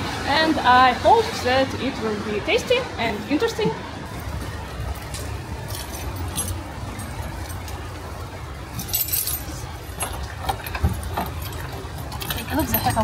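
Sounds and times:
keys jangling: 0:05.6 - 0:07.8, 0:08.8 - 0:13.0.

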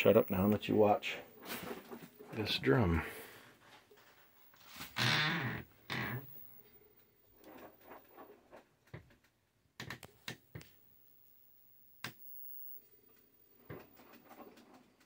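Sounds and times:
faint steady hum: 0:05.3 - 0:15.0.

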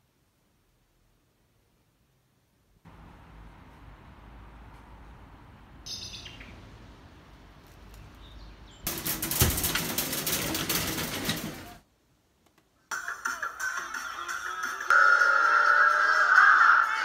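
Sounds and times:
outdoor background noise: 0:00.0 - 0:17.0
high chirp: 0:05.9 - 0:06.6.

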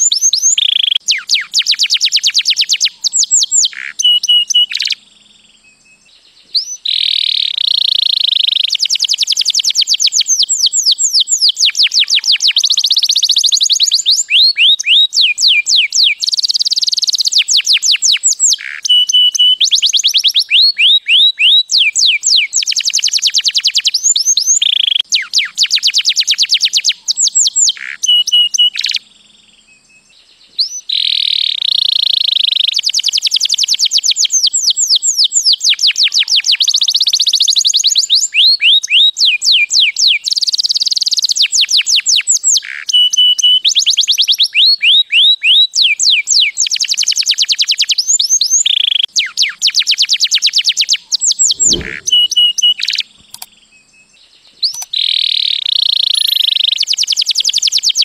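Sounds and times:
canary singing trills: 0:00.0 - 0:58.0.

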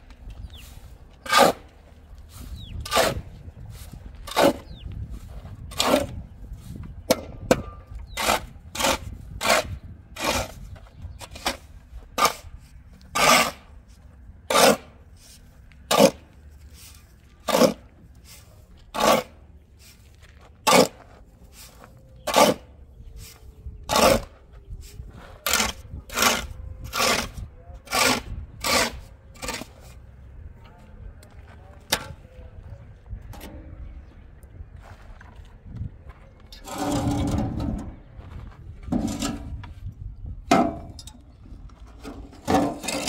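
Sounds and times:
spade scraping into earth: 0:00.5 - 0:01.7, 0:02.3 - 0:04.8, 0:05.6 - 0:06.2, 0:08.1 - 0:13.7, 0:14.5 - 0:24.3, 0:24.9 - 0:30.0, 0:36.6 - 0:38.0, 0:41.9 - 0:43.0.

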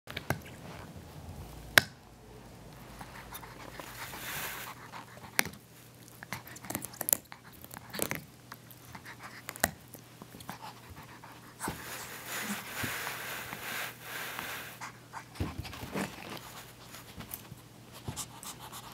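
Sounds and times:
dog breathing: 0:02.7 - 0:05.5, 0:10.4 - 0:16.7
teeth and paws clicking on toy: 0:04.8 - 0:11.3.

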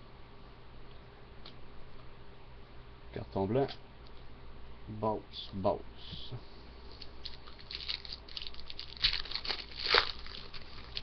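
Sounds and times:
foil wrapper crinkling: 0:06.9 - 0:11.0.

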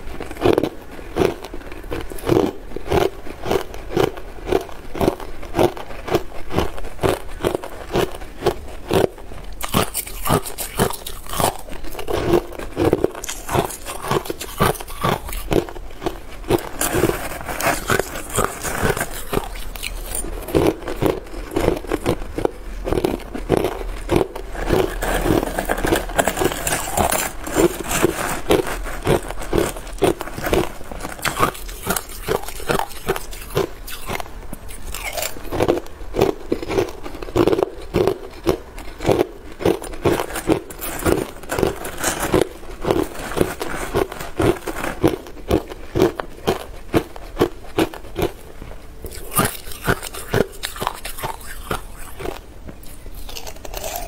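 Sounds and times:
ice being chewed: 0:00.0 - 0:54.0.

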